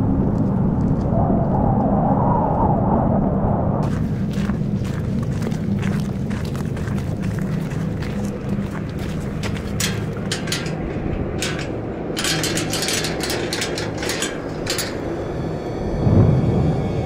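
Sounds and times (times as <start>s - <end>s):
hurried footsteps: 3.8s - 15.1s
low boom: 16.0s - 17.0s.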